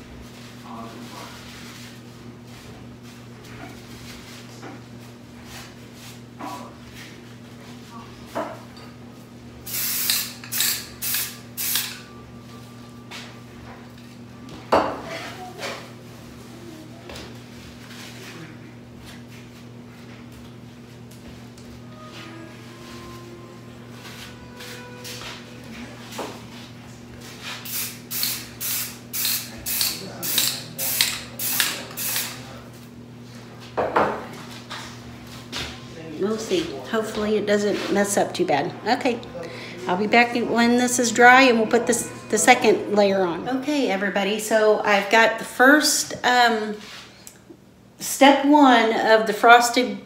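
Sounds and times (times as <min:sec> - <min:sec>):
spray paint hissing bursts: 0:09.7 - 0:12.0, 0:27.6 - 0:32.4.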